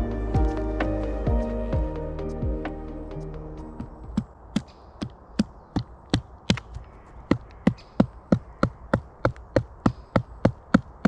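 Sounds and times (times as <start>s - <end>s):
hammering wooden peg: 7.3s - 11.0s.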